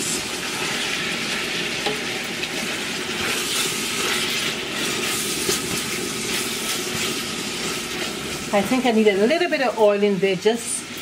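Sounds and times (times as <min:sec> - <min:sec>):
food sizzling in a metal pot: 0:00.0 - 0:11.0
spatula scraping: 0:03.2 - 0:08.6.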